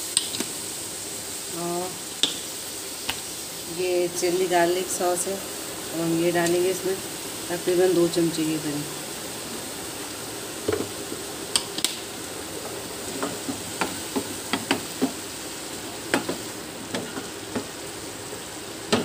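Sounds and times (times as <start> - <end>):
vegetables sizzling in frying pan: 0.0 - 19.0
spatula knocking and scraping pan: 13.2 - 15.2, 16.1 - 17.8.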